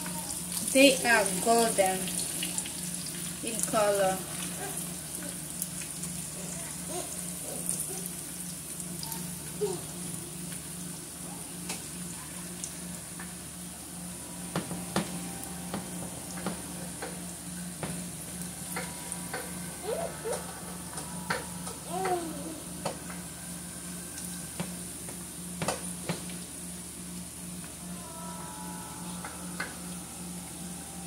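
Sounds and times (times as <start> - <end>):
fish sizzling in oil: 0.0 - 13.7.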